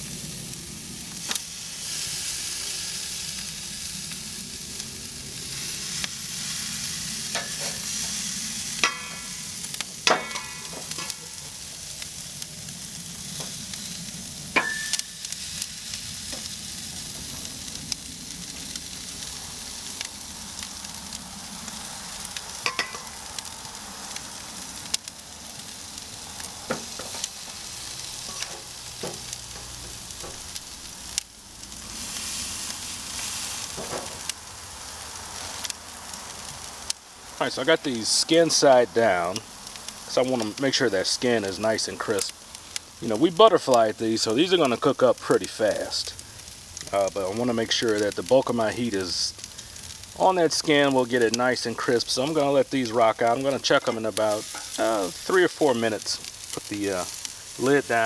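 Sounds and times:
chicken sizzling on grill: 0:00.0 - 0:58.0
metal tongs clinking: 0:14.6 - 0:15.1, 0:22.7 - 0:23.1.

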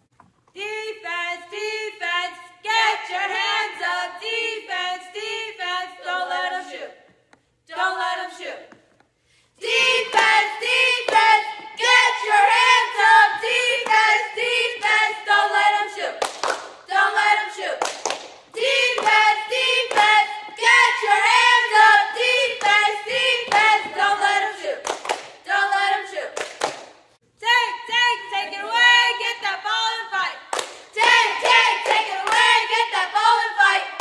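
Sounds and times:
group chanting in unison: 0:09.6 - 0:16.2, 0:16.9 - 0:17.8, 0:18.6 - 0:26.4, 0:31.0 - 0:34.0
sharp hand claps: 0:16.2 - 0:16.8, 0:17.8 - 0:19.2, 0:24.8 - 0:25.4, 0:26.4 - 0:27.0, 0:30.5 - 0:32.5.

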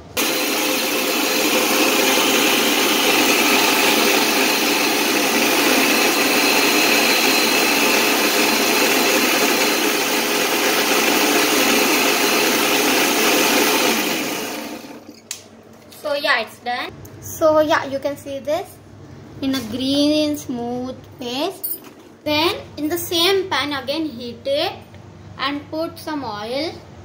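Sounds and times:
mixer grinder running: 0:00.0 - 0:15.2.

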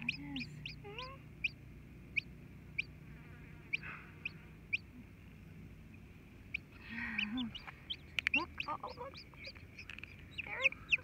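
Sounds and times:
chicks peeping: 0:00.0 - 0:03.0, 0:03.7 - 0:04.9, 0:06.5 - 0:11.0
hen clucking: 0:00.0 - 0:03.0, 0:03.7 - 0:04.9, 0:06.5 - 0:11.0.

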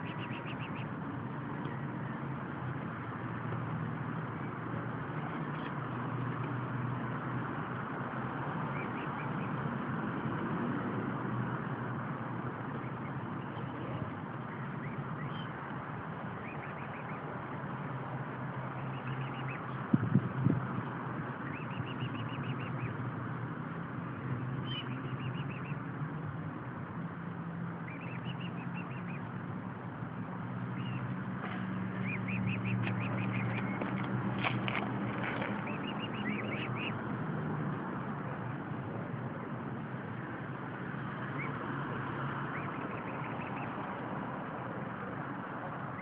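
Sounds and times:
cygnets peeping faintly: 0:00.0 - 0:06.5, 0:08.3 - 0:09.7, 0:12.6 - 0:17.8, 0:18.7 - 0:20.2, 0:20.8 - 0:23.0, 0:24.1 - 0:25.9, 0:27.8 - 0:29.4, 0:30.2 - 0:37.0, 0:41.1 - 0:44.1
steady rumbling background noise: 0:00.0 - 0:46.0.

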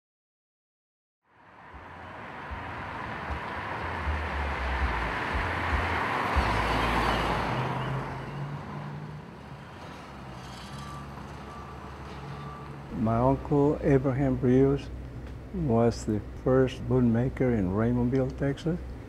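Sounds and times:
car driving past: 0:01.3 - 0:13.5.

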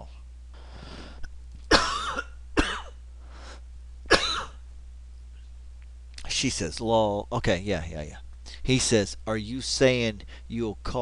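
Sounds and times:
man coughing: 0:01.7 - 0:03.0, 0:04.1 - 0:04.6.

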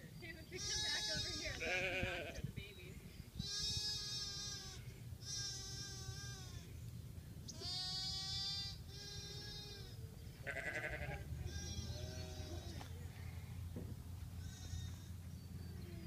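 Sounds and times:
lamb bleating: 0:00.6 - 0:02.4, 0:03.4 - 0:06.7, 0:07.5 - 0:12.8, 0:14.4 - 0:15.1.

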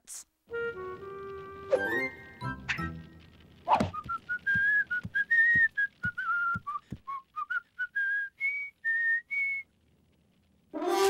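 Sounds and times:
soft low thumps: 0:03.7 - 0:07.2
person whistling a tune: 0:03.9 - 0:09.6.

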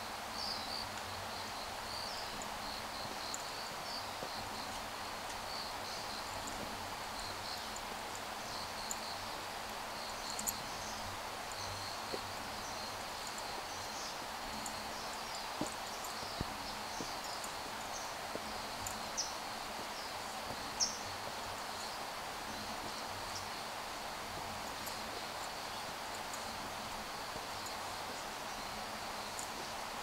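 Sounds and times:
insects buzzing: 0:00.0 - 0:30.0
footsteps on concrete steps: 0:15.4 - 0:17.6, 0:18.2 - 0:20.8.

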